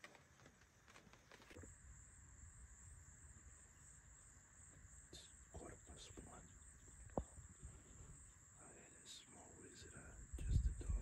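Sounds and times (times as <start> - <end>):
insects chirring: 0.0 - 11.0
low wind rumble: 9.4 - 11.0.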